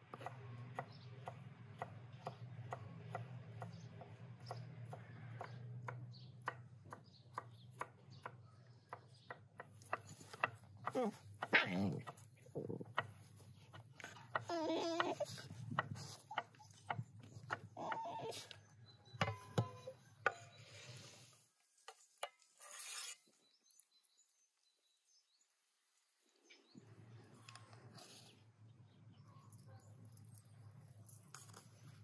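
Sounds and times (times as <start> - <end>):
puppies yipping and growling: 14.1 - 18.6.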